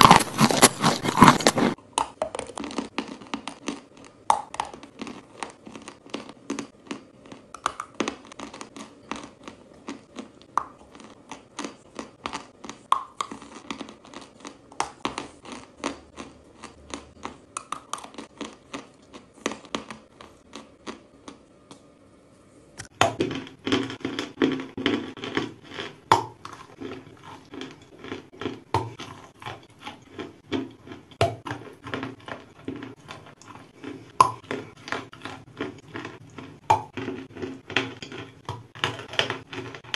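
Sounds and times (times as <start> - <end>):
chalk being chewed: 0.0 - 1.8.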